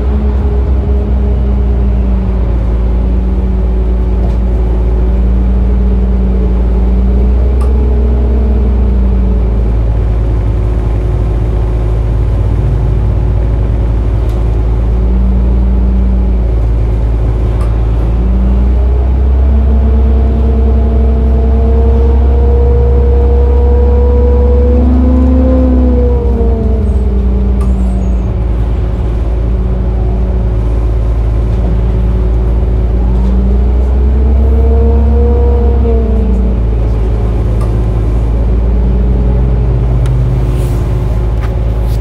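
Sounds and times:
bus engine drone: 0.0s - 42.0s
rising whine: 0.0s - 42.0s.

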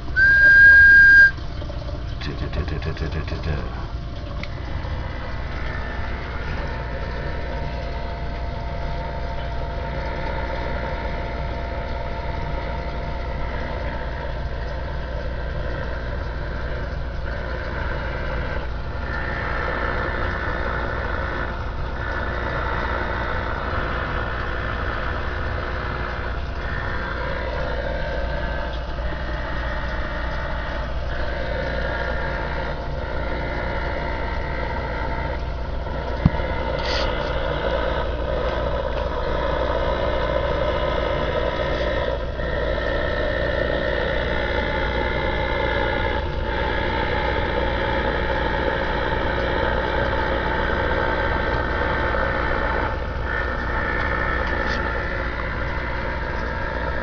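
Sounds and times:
radio static and hum: 2.2s - 3.9s, 36.2s - 37.4s.

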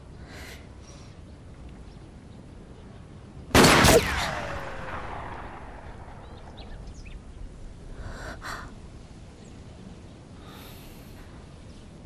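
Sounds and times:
faint bird chirps: 4.4s - 8.7s.

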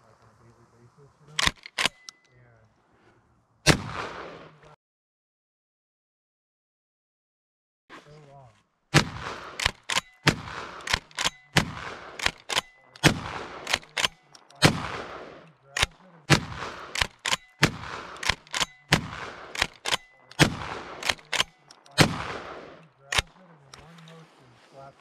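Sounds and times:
shotgun shots echoing: 3.6s - 4.8s, 8.9s - 23.9s
metallic clacks of pump action: 10.8s - 11.6s, 16.9s - 20.4s.

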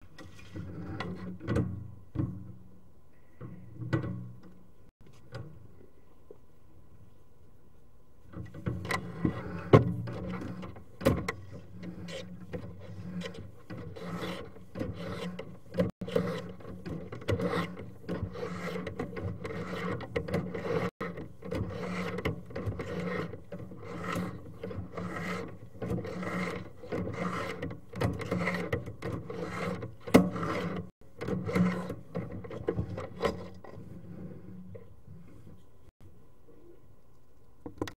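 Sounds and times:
cable rubbing and scraping: 8.4s - 35.7s.

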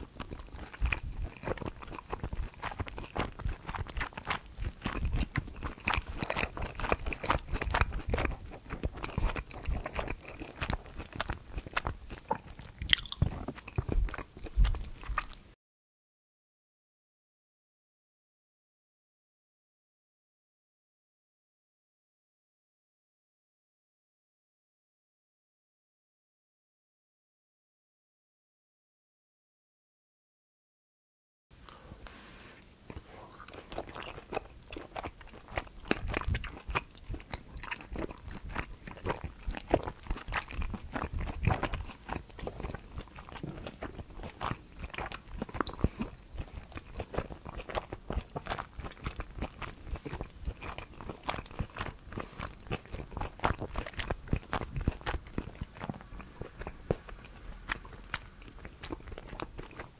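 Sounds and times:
chewing food: 0.0s - 15.5s, 31.6s - 59.9s
crisp crunching: 12.9s - 13.4s.

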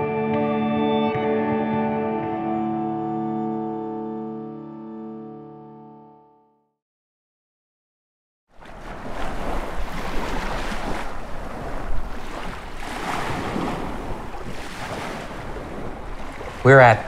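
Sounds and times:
small waves washing onto beach: 8.5s - 17.0s
wind rumbling on microphone: 8.7s - 17.0s.

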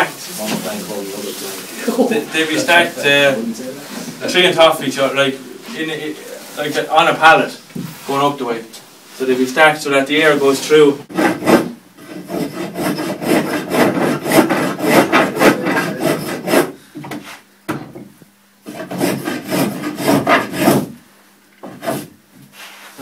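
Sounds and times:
spokeshave scraping wood: 10.2s - 17.5s.

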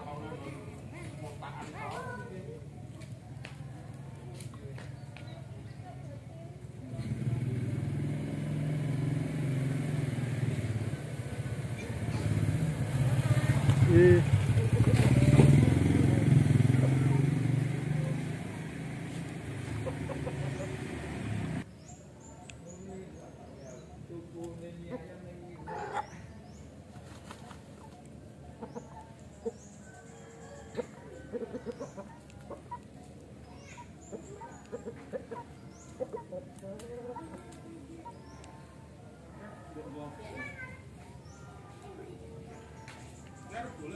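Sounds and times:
vehicle engine running: 6.6s - 21.7s
chickens clucking: 10.5s - 21.7s, 23.4s - 39.8s.

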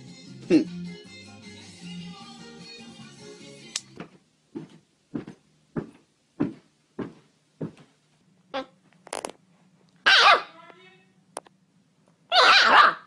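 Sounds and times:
hands thumping on stairs: 4.0s - 7.9s
puppy yipping: 10.1s - 10.5s, 12.3s - 13.0s.

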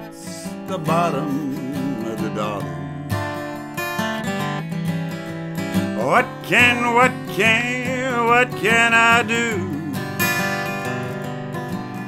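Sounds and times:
person singing: 0.0s - 3.6s, 6.0s - 10.8s
acoustic guitar strumming: 0.0s - 12.0s.

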